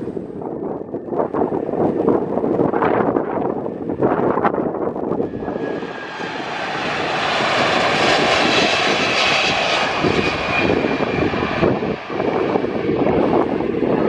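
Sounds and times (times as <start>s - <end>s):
jet airliner engines passing low: 0.0s - 14.0s
high engine whine: 5.0s - 14.0s.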